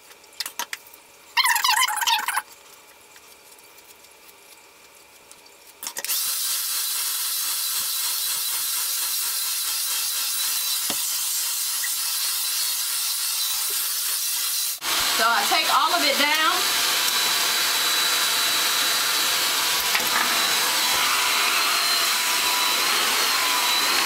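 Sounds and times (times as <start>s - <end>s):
hair dryer running: 14.8s - 24.0s.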